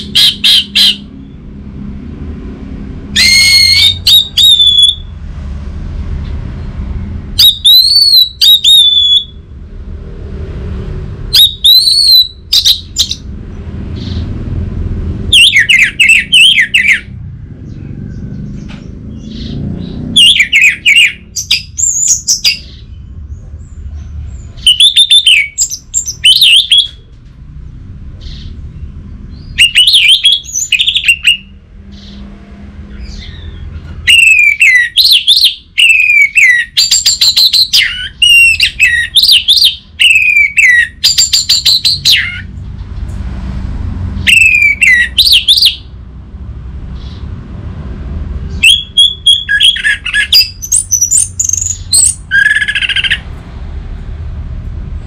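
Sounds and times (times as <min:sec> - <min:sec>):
bird whistled song: 0:00.0 - 0:01.4, 0:03.1 - 0:05.1, 0:07.4 - 0:09.4, 0:11.3 - 0:13.2, 0:15.3 - 0:17.1, 0:19.1 - 0:23.8, 0:24.4 - 0:27.0, 0:28.2 - 0:32.2, 0:32.9 - 0:42.5, 0:44.2 - 0:45.9, 0:48.5 - 0:53.2.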